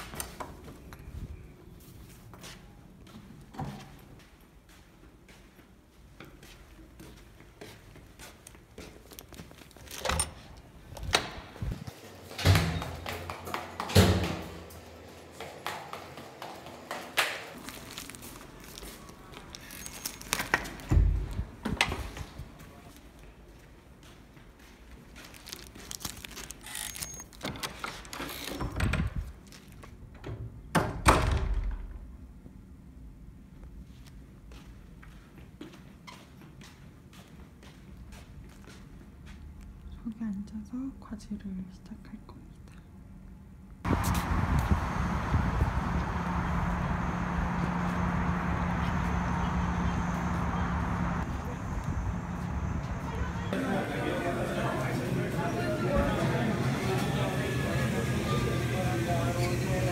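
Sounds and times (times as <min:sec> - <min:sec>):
soft footsteps on carpet: 0:01.8 - 0:09.7, 0:33.8 - 0:39.7
door slamming shut: 0:13.9 - 0:14.6, 0:30.7 - 0:32.0.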